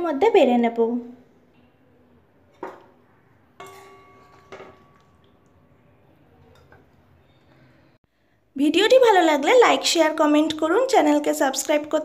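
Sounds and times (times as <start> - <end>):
metal utensil clinking on pot: 3.6 - 5.6, 6.4 - 7.0.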